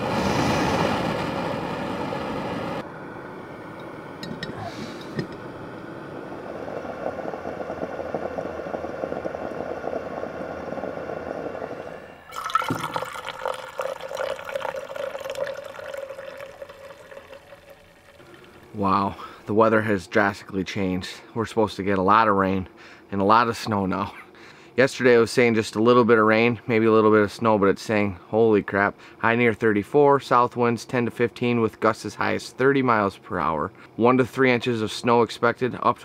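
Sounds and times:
stove burner hissing: 0:00.0 - 0:20.1
moka pot gurgling: 0:04.2 - 0:19.0
coffee pouring into mug: 0:11.8 - 0:18.7.

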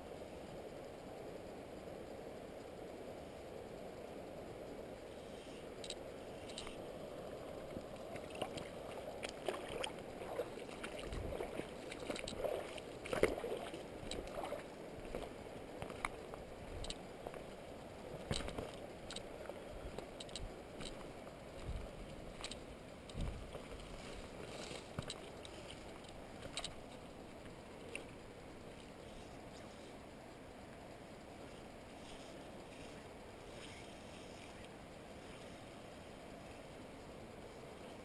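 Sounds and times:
faint steady hiss: 0:00.0 - 0:38.0
water sloshing around boots: 0:08.1 - 0:16.2.

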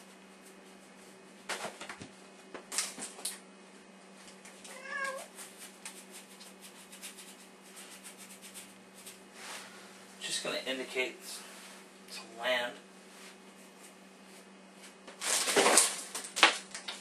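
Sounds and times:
cat meowing: 0:04.7 - 0:05.3
paintbrush strokes on canvas: 0:05.3 - 0:10.3.

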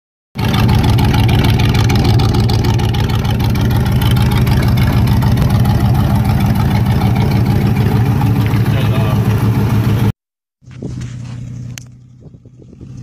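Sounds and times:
engine idling loudly: 0:00.4 - 0:10.1.

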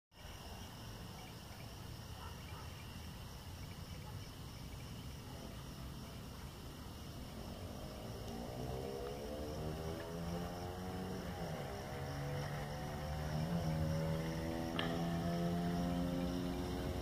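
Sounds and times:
crickets chirping: 0:00.1 - 0:17.0.

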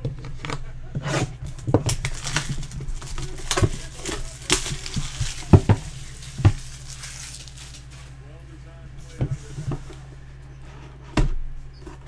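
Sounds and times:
shrink-wrap crinkling and tearing: 0:01.4 - 0:08.2.

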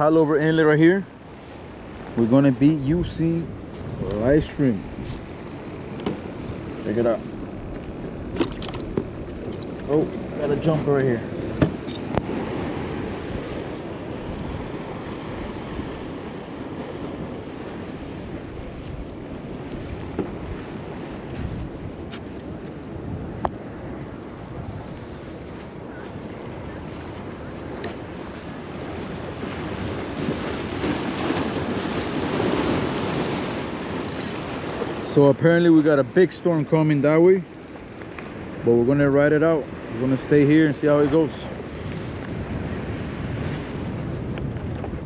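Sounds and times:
wind buffeting microphone: 0:00.0 - 0:36.4, 0:37.4 - 0:45.0
ocean surf washing against rocks: 0:00.0 - 0:45.0
surf breaking against rocks: 0:25.1 - 0:36.3.

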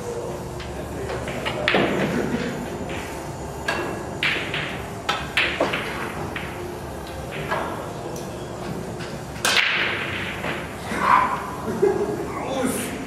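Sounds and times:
billiard balls clacking: 0:00.6 - 0:12.0
cue striking ball: 0:01.2 - 0:11.6.

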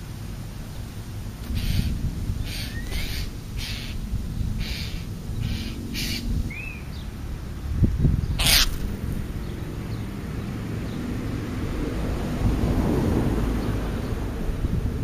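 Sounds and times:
steady low rumble: 0:00.0 - 0:15.0
crow cawing: 0:01.6 - 0:01.9, 0:04.6 - 0:06.2, 0:08.4 - 0:08.8.

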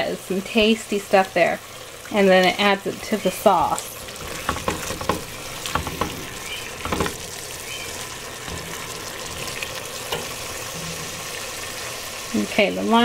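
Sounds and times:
vegetables sizzling in a pot: 0:00.0 - 0:13.0
spatula scraping pot bottom: 0:03.6 - 0:07.2.

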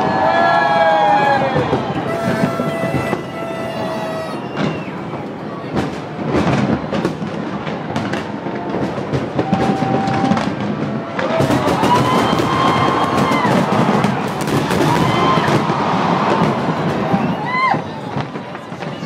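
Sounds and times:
crowd noise: 0:00.0 - 0:19.0
fireworks bangs and crackles: 0:00.0 - 0:19.0
horn note: 0:02.0 - 0:04.7.

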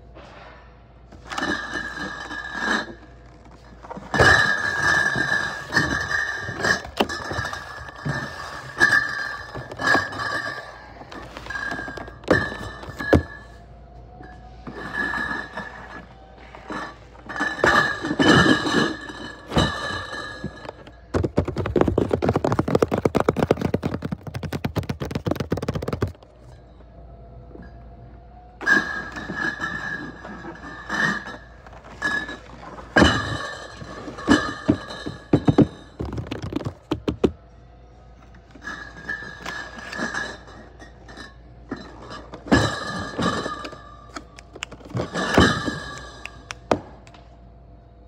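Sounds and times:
dense rattling of bottles: 0:01.1 - 0:13.6, 0:14.6 - 0:26.4, 0:28.6 - 0:37.4, 0:38.6 - 0:46.8
cardboard cases thunking down: 0:17.6 - 0:26.2
cardboard cases scraping: 0:20.5 - 0:26.2.

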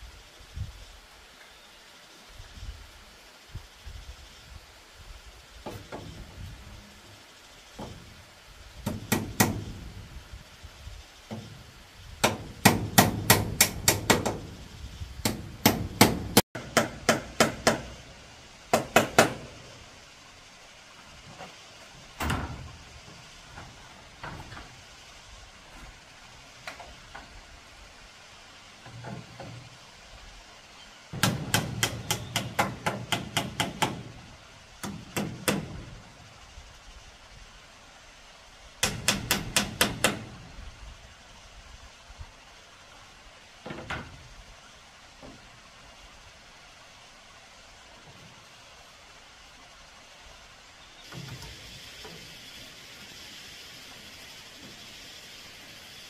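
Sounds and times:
hammer striking bamboo: 0:08.8 - 0:09.8, 0:12.2 - 0:14.5, 0:15.2 - 0:18.0, 0:18.7 - 0:19.6, 0:31.2 - 0:34.2, 0:34.8 - 0:35.9, 0:38.8 - 0:40.4.

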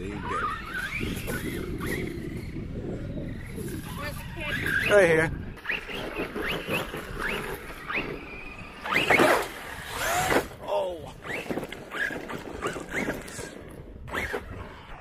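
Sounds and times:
rc truck electric motor whining: 0:00.3 - 0:04.9, 0:05.6 - 0:10.6.

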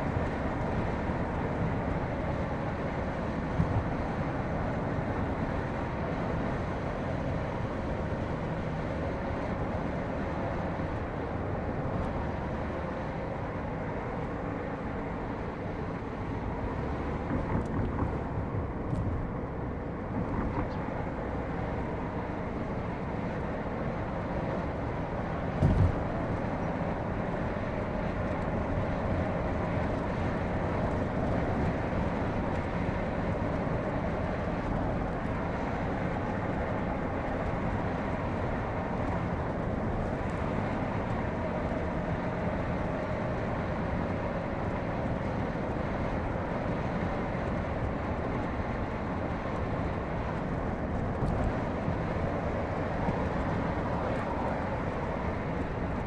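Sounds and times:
low rumble of car driving: 0:00.0 - 0:56.0
low thumps over road bumps: 0:16.8 - 0:21.4, 0:25.5 - 0:26.3.

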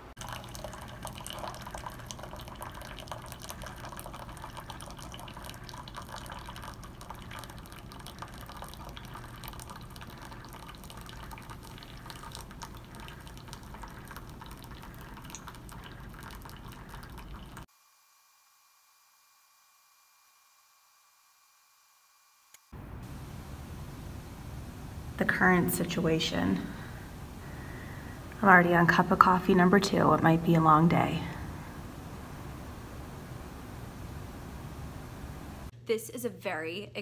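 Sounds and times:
coffee pouring into paper cup: 0:00.2 - 0:17.7, 0:26.6 - 0:34.7.

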